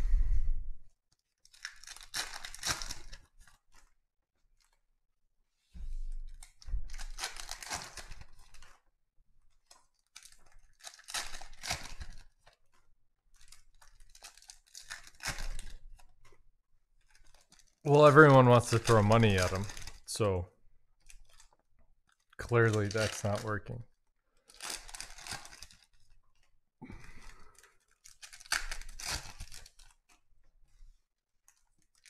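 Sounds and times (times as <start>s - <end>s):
foil wrappers tearing and crinkling: 1.2s - 3.9s, 6.3s - 8.8s, 9.6s - 12.7s, 13.3s - 16.2s, 17.0s - 20.2s, 21.0s - 23.5s, 24.4s - 26.2s, 27.0s - 30.2s, 31.5s - 32.0s.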